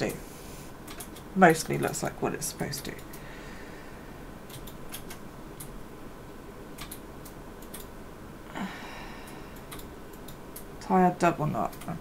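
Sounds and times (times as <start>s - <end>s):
low room noise: 0.0s - 12.0s.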